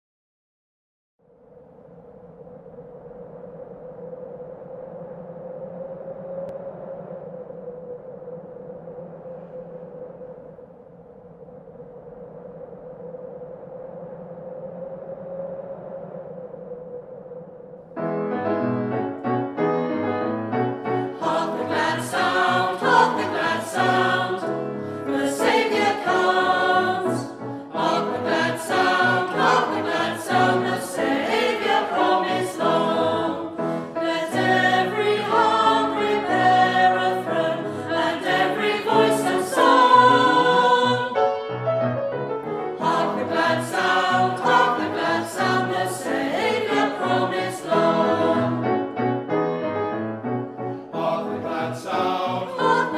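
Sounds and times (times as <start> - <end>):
grand piano: 18.0 - 52.9
mixed choir singing a carol: 20.8 - 41.4, 42.8 - 49.0, 50.9 - 52.9.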